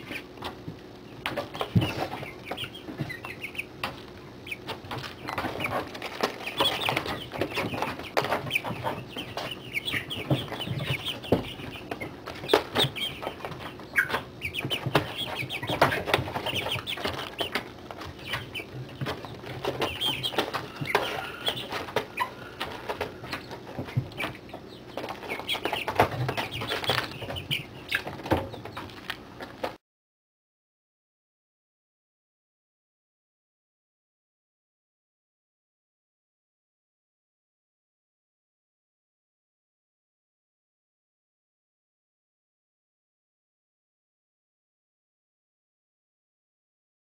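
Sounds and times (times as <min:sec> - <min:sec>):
chicks peeping and chirping: 0:00.0 - 0:29.8.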